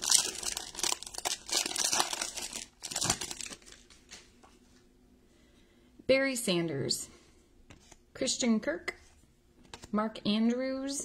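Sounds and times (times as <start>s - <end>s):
foil wrapper crinkling: 0.0s - 4.3s.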